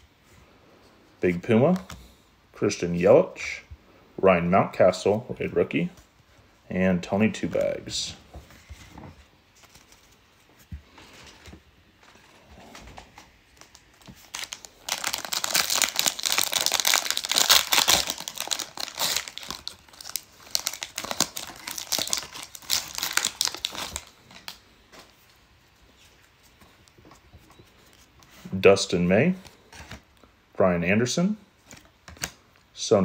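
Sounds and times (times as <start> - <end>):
cards rustling: 8.5 - 25.2
wrapper tearing and crinkling: 13.6 - 24.6.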